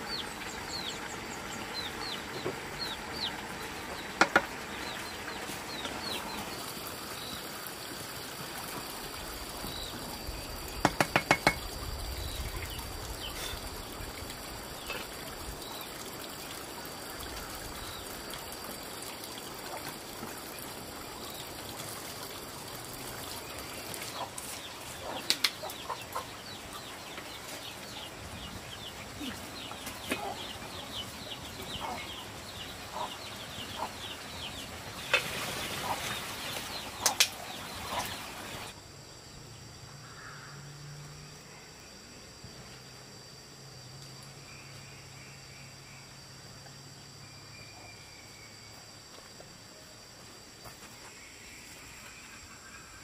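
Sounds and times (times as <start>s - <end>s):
sharp knocks: 4.2s - 4.6s, 10.8s - 11.6s
chickens clucking: 24.0s - 28.1s, 28.8s - 38.7s.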